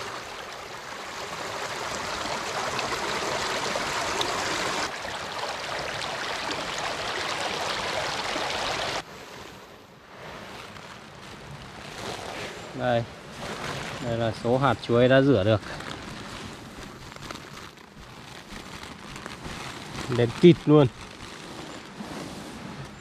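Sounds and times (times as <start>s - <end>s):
stream water running: 0.0s - 9.2s.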